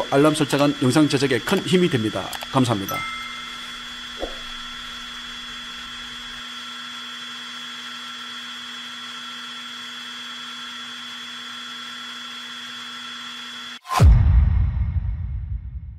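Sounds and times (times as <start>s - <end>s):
steady machine whine: 0.0s - 11.5s.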